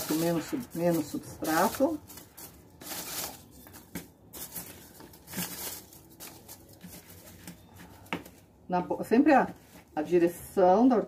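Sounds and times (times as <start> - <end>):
leaves and roots rustling: 0.0 - 8.1
styrofoam rustling and crinkling: 0.0 - 8.5.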